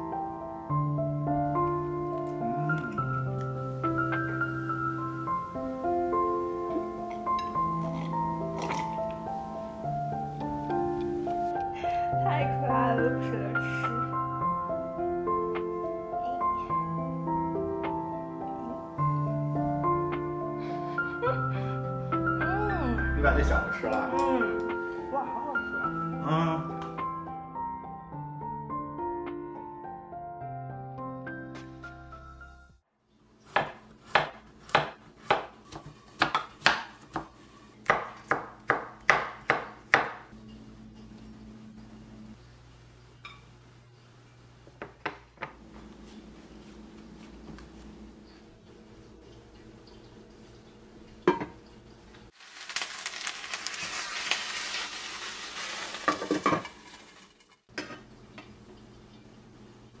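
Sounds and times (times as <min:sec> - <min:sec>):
piano music: 0:00.0 - 0:32.9
knife chopping on wooden board: 0:33.5 - 0:40.2
chicken sizzling in a frying pan: 0:52.3 - 0:57.8.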